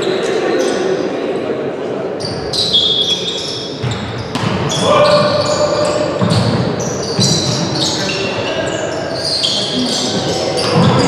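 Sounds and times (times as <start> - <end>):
voices echoing: 0.0 - 11.0
shoes squeaking on court: 2.2 - 11.0
ball bouncing and thudding: 3.8 - 5.4, 6.0 - 7.8, 10.6 - 11.0.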